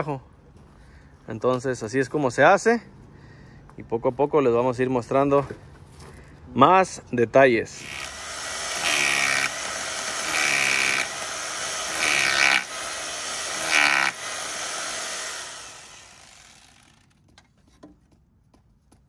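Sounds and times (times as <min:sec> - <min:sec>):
power drill boring into concrete: 0:07.8 - 0:17.2.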